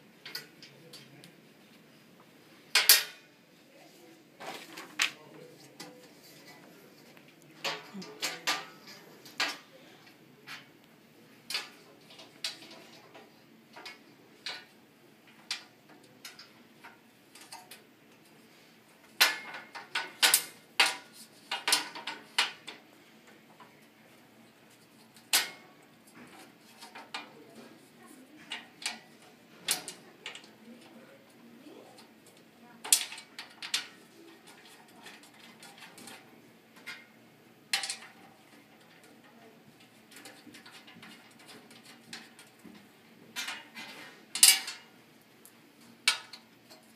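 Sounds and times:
metal parts clicking and clinking: 2.7 - 3.2, 19.0 - 22.8, 28.5 - 30.6, 32.0 - 37.0, 37.7 - 42.7, 43.4 - 44.9, 46.0 - 46.9.

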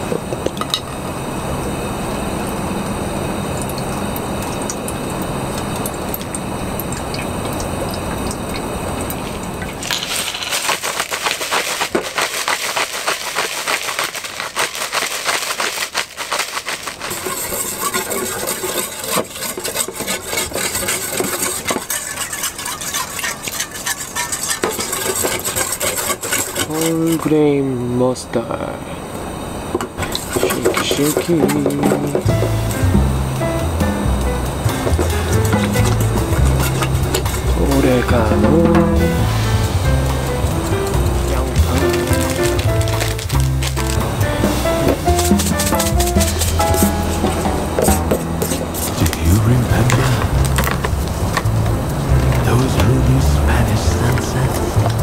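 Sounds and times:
steady rushing noise: 0.0 - 55.0
utensil clinking against a pot: 16.4 - 27.3, 30.0 - 33.0, 33.8 - 44.1.

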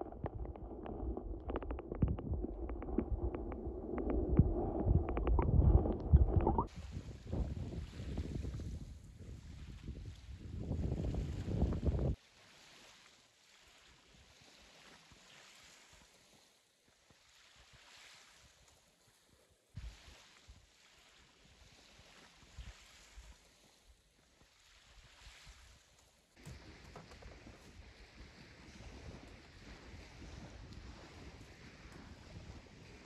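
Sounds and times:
gentle waves on shell beach: 0.0 - 5.8, 12.2 - 33.0
low wind thumps on microphone: 0.0 - 12.2
wind buffeting microphone: 0.0 - 12.2.

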